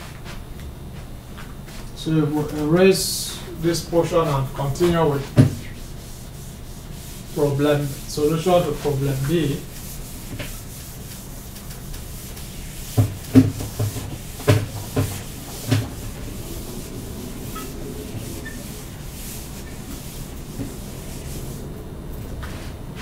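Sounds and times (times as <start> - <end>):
eraser rubbing whiteboard: 4.2 - 21.7
knocks against whiteboard: 12.9 - 15.9.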